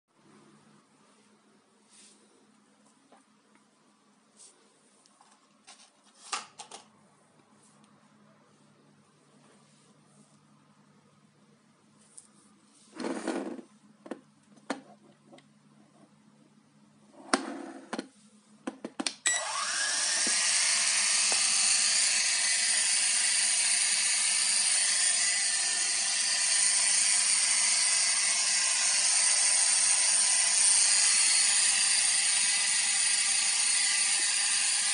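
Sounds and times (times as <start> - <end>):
drone motors whirring: 19.3 - 34.9.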